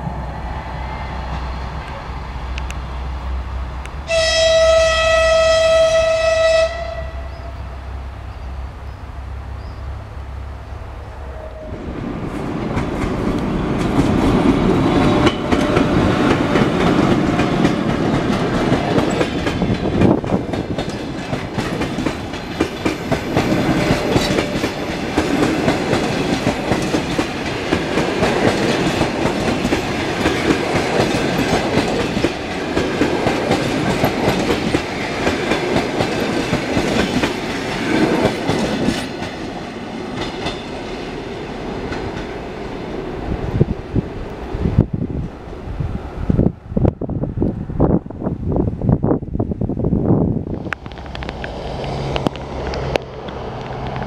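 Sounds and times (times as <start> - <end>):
train wheels clattering over rail joints: 12.6 - 41.1.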